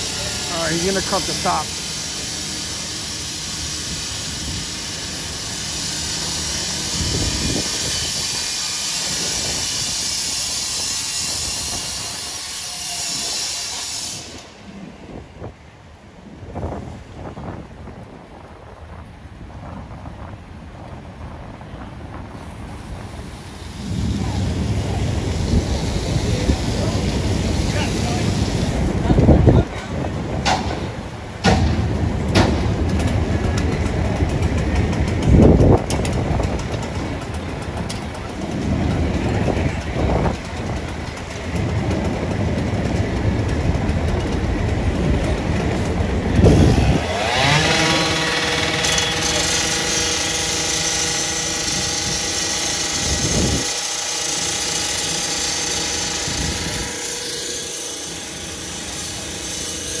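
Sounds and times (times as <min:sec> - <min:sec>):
rotary saw cutting metal: 0:00.0 - 0:14.7, 0:24.9 - 0:28.9, 0:45.3 - 1:00.0
heavy thuds and clanks: 0:30.4 - 0:36.6.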